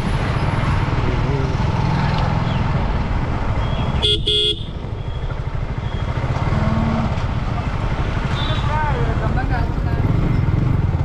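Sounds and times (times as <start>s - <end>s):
motorcycle engine rumble: 0.0s - 11.0s
vehicle horn toots: 4.0s - 4.8s.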